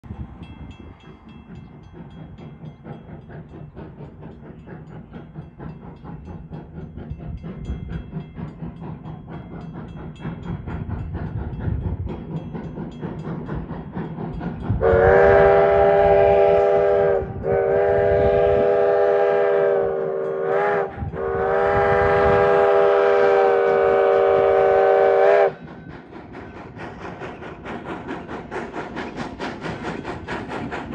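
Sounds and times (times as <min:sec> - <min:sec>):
steam locomotive chuffing: 0:00.0 - 0:30.9
steam whistle chord: 0:14.8 - 0:25.6.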